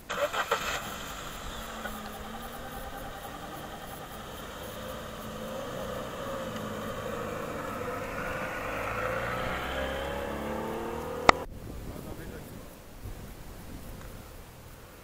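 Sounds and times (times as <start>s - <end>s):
car engine running: 0.0s - 11.5s.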